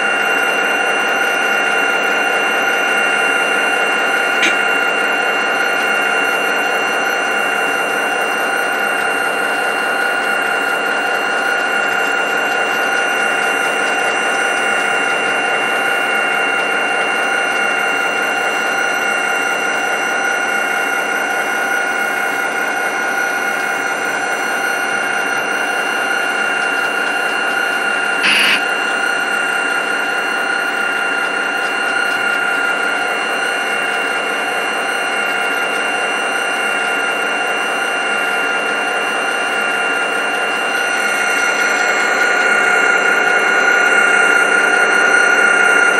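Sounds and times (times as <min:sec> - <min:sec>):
model train motor whine: 0:00.0 - 0:45.9
brief sharp sound: 0:28.2 - 0:28.7.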